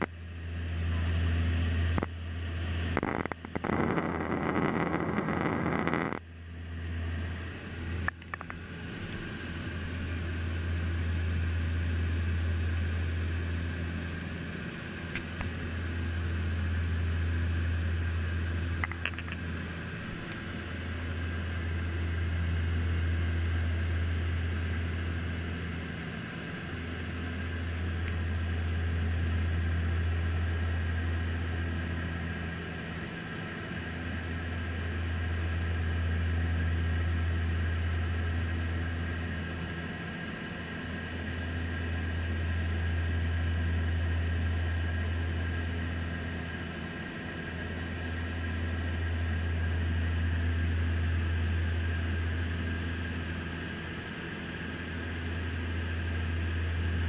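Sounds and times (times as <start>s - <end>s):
turboprop engine drone: 0.0s - 57.0s.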